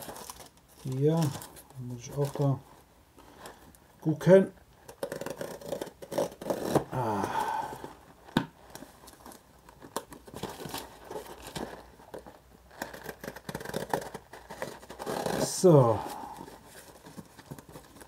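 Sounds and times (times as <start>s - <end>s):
tape tearing: 0.0s - 2.6s, 4.8s - 7.4s, 8.3s - 18.0s
knife cutting cardboard and tape: 4.9s - 7.3s, 12.8s - 15.7s.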